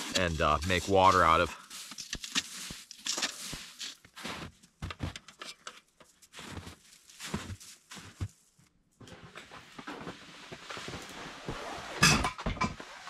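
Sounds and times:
wet snow crunching and scraping: 0.0s - 5.1s, 6.1s - 8.6s, 9.4s - 12.0s.

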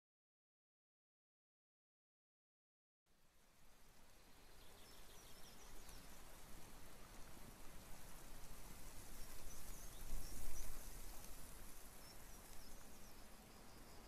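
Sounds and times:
wind noise: 8.4s - 14.0s
faint high bird chirps: 12.0s - 14.0s.

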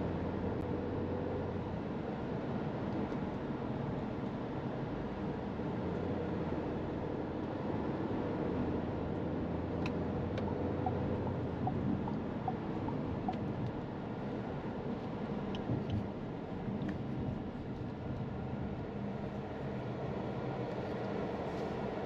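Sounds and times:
tyre and engine rumble: 9.6s - 13.8s.

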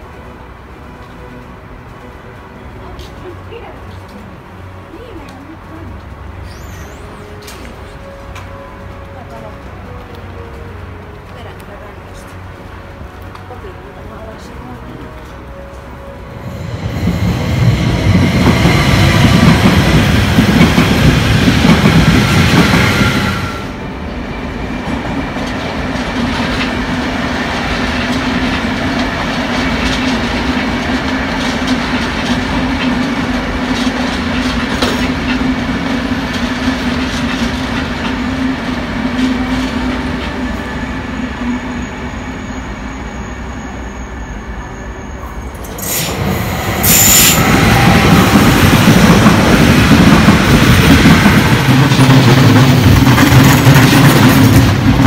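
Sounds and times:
electric train humming: 0.0s - 55.0s
train rushing past: 0.0s - 55.0s
wheels clicking over rail joints: 46.8s - 55.0s.

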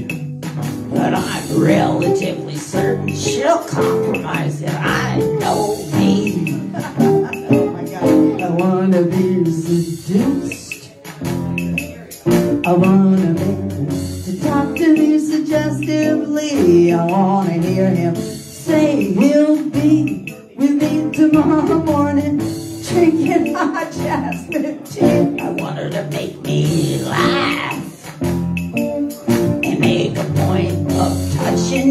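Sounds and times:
person singing: 0.0s - 0.3s, 0.9s - 28.2s, 28.8s - 31.9s
acoustic guitar strumming: 0.0s - 9.9s.

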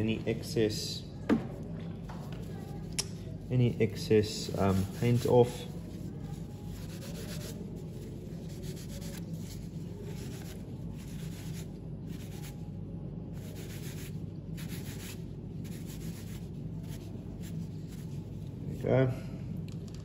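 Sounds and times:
paper towel rubbing on metal: 3.6s - 12.6s, 13.4s - 18.3s.

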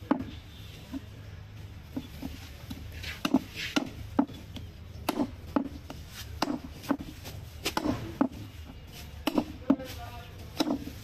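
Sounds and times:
knife chopping meat on wooden block: 3.2s - 7.1s, 7.7s - 8.4s, 9.2s - 9.9s, 10.5s - 11.0s.

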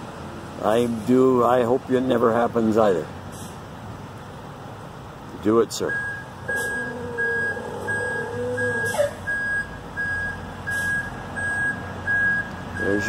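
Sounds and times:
back-up alarm beeping: 5.9s - 13.0s.

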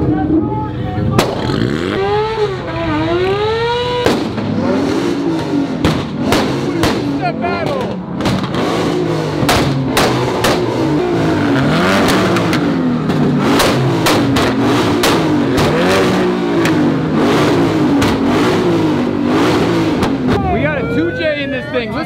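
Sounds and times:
exhaust pops and cracks: 1.1s - 1.5s, 5.4s - 8.6s, 9.4s - 10.8s, 12.0s - 15.9s, 17.9s - 18.3s
car engine revving: 1.1s - 20.8s.

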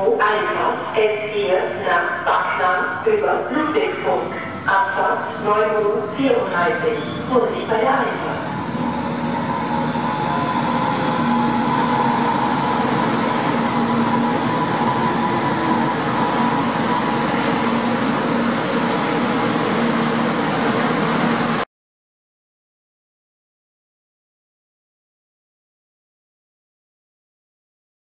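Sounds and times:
train wheels rushing on rail: 4.2s - 21.6s.

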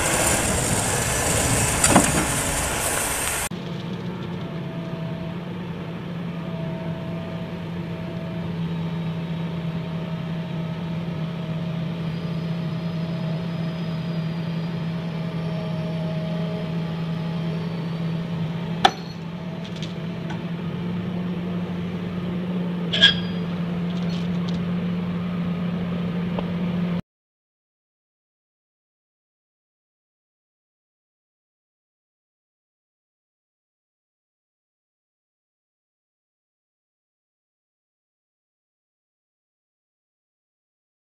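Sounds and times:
faint wavering whine: 0.0s - 26.1s
excavator diesel engine running: 0.0s - 27.0s
sharp metallic clanks: 18.8s - 19.3s, 22.9s - 24.2s.

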